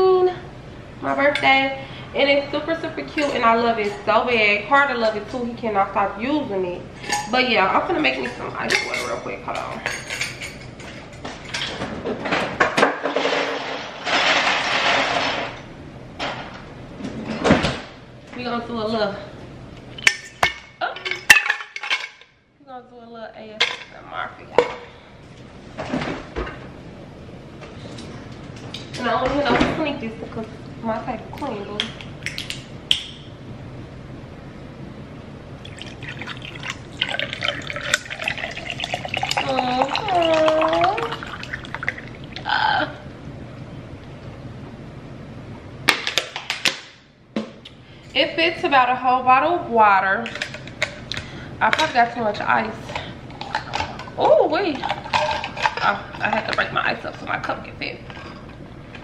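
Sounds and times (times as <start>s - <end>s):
ice clinking in a cup: 35.6s - 42.1s.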